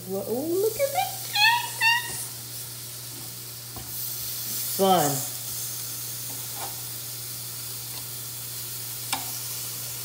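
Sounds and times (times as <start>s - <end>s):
meat sizzling on a grill: 0.0s - 10.0s.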